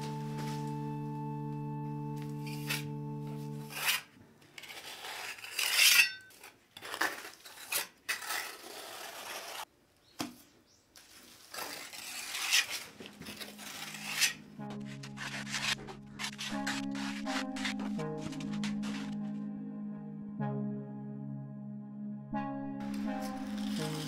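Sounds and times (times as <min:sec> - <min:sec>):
trowel scraping plaster on wall: 0:03.6 - 0:09.7, 0:11.3 - 0:18.0, 0:23.1 - 0:24.0.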